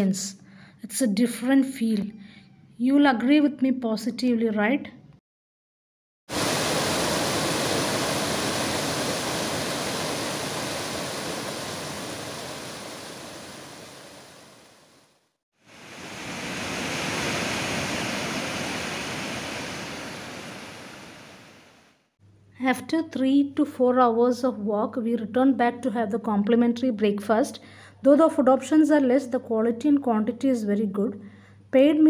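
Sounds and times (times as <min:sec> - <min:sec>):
water rushing down cascade: 0:06.3 - 0:14.8, 0:15.7 - 0:21.8.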